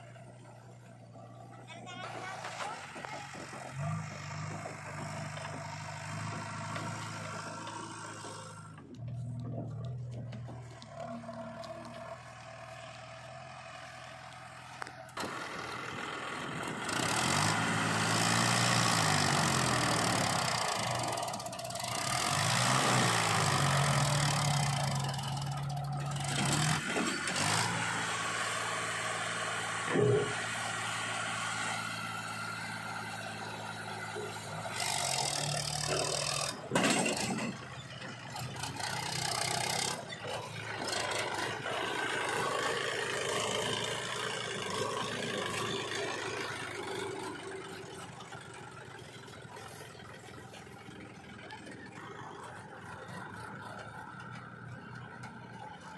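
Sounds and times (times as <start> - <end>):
tractor diesel engine under load: 0.0 - 55.9.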